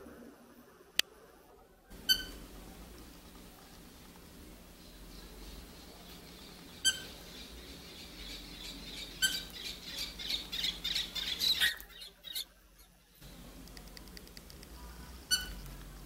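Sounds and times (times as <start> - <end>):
cockatiel chirping and chattering: 2.0 - 2.4, 6.3 - 12.5, 15.3 - 15.6.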